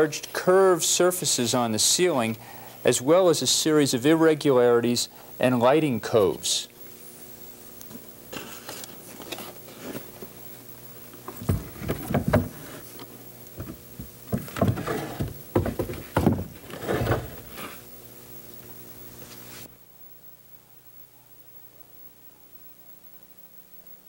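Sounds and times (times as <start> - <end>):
steady low hum: 0.0 - 24.0
wooden pieces knocking and scraping: 11.3 - 17.8.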